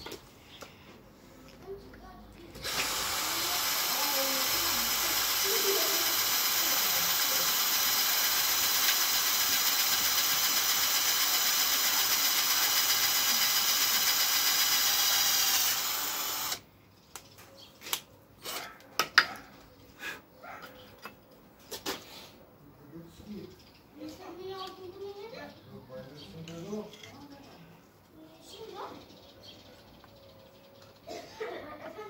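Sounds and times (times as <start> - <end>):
cordless drill boring into wood: 2.6 - 16.6.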